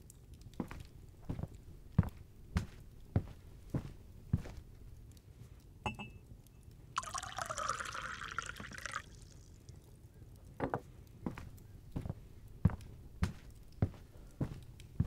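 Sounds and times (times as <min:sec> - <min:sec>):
soft footsteps: 0:00.6 - 0:04.8, 0:11.2 - 0:15.0
liquid poured into cup: 0:07.0 - 0:09.7.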